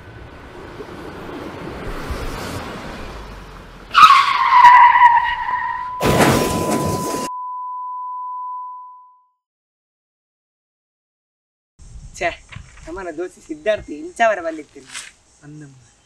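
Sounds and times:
tyre screech: 3.9s - 7.3s
car crash: 4.2s - 7.3s
high ringing tone: 5.7s - 9.4s.

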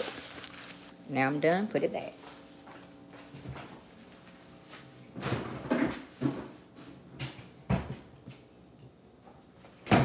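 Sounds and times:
kitchen knocks and clunks: 5.2s - 6.6s, 7.2s - 8.1s, 9.8s - 10.0s.

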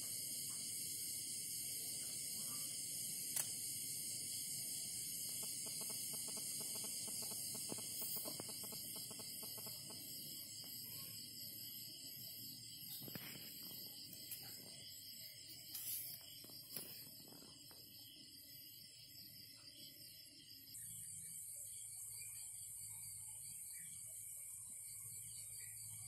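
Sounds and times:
night insects chirring: 0.0s - 26.0s
sharp click: 3.3s - 3.6s
rapid clicking calls: 5.2s - 10.7s.

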